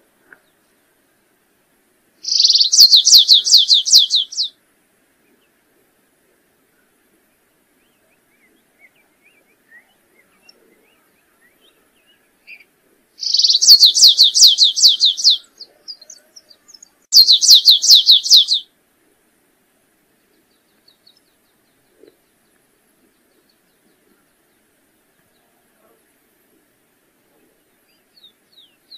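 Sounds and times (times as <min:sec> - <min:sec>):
finch singing trills: 0:02.2 - 0:04.5, 0:07.8 - 0:18.6.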